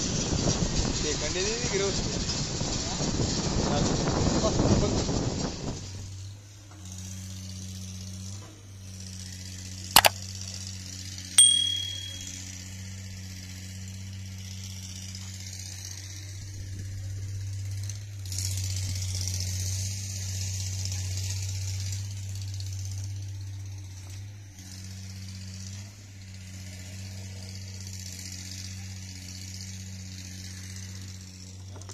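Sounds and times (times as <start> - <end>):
mouse click: 10.0 - 10.2
short bright bell ding: 11.4 - 12.4.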